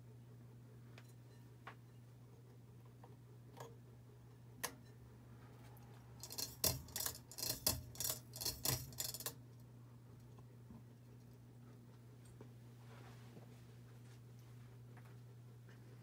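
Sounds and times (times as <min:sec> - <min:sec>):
ceiling fan humming: 0:00.0 - 0:16.0
fan clicking and rattling: 0:06.2 - 0:10.4.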